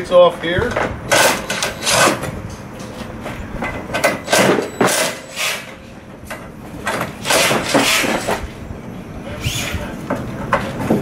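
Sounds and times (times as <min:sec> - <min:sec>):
knocks and rattles of hand work: 0:00.4 - 0:05.4, 0:06.1 - 0:08.5, 0:10.0 - 0:11.0.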